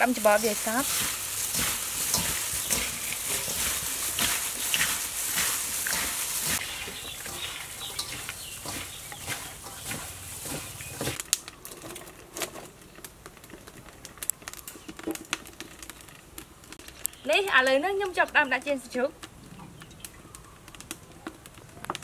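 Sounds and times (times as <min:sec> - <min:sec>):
firewood clicks and knocks: 0:06.6 - 0:17.2, 0:19.2 - 0:22.0.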